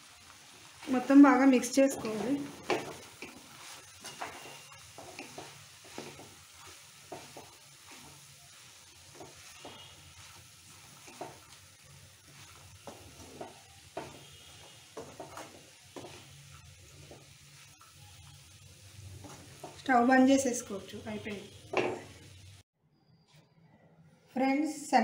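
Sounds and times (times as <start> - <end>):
soft sizzle: 0.0 - 22.7
spatula scraping a pan: 0.6 - 19.9.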